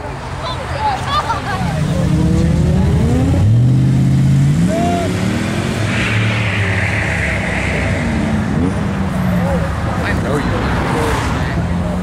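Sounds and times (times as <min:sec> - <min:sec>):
vehicle engine revving: 0:01.6 - 0:10.0.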